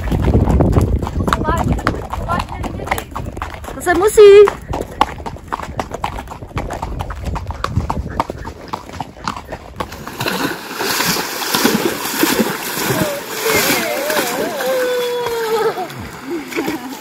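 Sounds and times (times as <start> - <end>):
horse hooves clip-clopping on dirt: 0.0 - 13.2
horse wading through water: 0.0 - 17.0.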